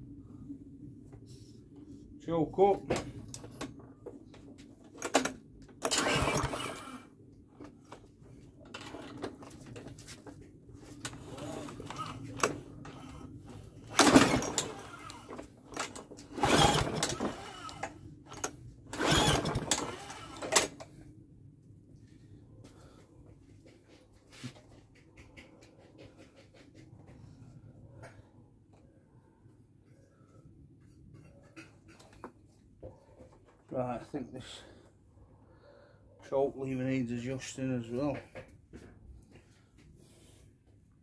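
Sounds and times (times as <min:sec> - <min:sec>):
lawnmower pull-starter rasping: 0:05.0 - 0:07.1, 0:08.7 - 0:09.9, 0:11.0 - 0:13.2, 0:13.8 - 0:20.8.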